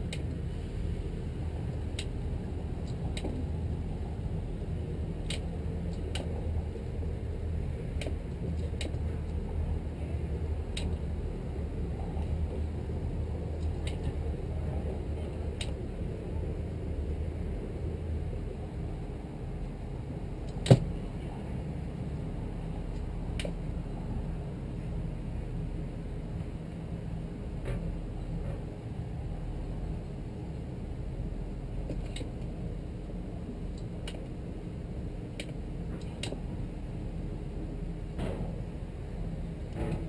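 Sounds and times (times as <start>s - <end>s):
boat engines idling: 0.0s - 40.0s
light ticks: 1.7s - 2.2s, 10.7s - 11.0s, 13.6s - 14.2s, 15.6s - 15.8s, 35.4s - 36.4s.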